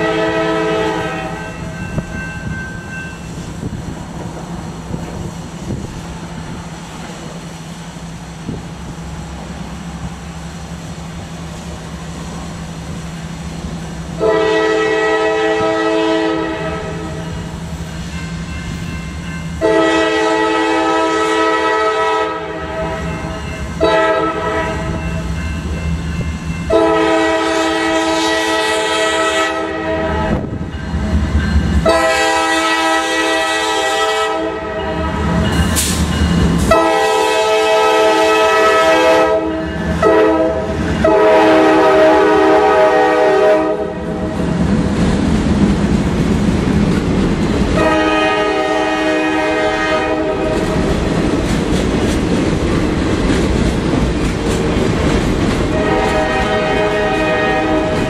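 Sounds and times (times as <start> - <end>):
diesel locomotive horn blasts: 0.0 - 1.8, 14.2 - 17.5, 19.6 - 25.5, 26.6 - 30.8, 31.8 - 35.9, 36.6 - 44.4, 47.8 - 50.8, 55.7 - 58.0
boxcars rattling on rails: 0.0 - 21.8, 22.7 - 33.8, 34.6 - 43.0, 44.1 - 58.0
low rumble of locomotives: 0.0 - 58.0.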